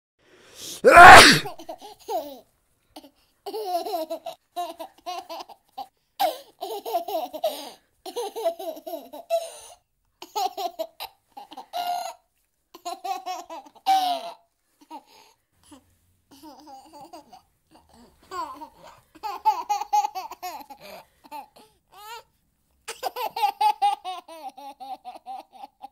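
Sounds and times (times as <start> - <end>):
loud sudden noise: 0.9 - 1.5.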